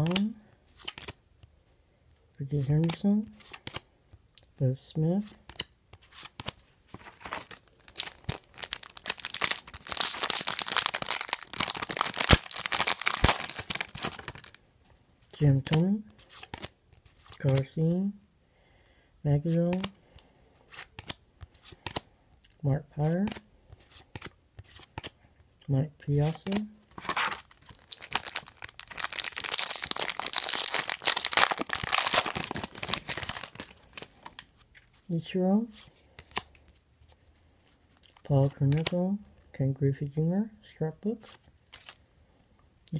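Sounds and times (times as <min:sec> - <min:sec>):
foil wrapper crinkling: 0:07.0 - 0:14.6, 0:27.0 - 0:34.4
foil wrapper tearing: 0:07.3 - 0:14.6, 0:27.1 - 0:34.4.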